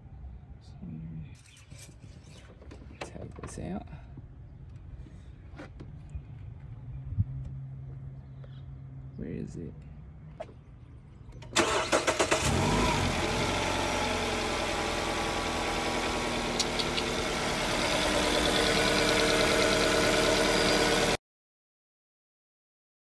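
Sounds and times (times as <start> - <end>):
car engine starting and idling: 11.3 - 21.2.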